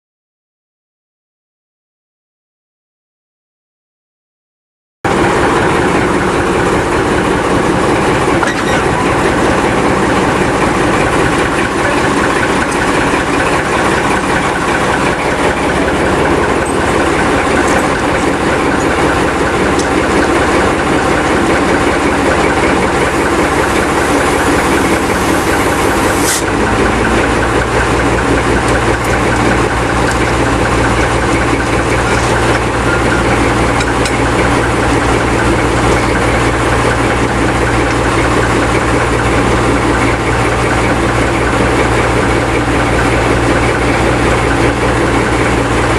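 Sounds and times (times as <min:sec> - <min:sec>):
diesel engine running: 0:05.1 - 0:45.9
deep low rumble: 0:19.5 - 0:39.7.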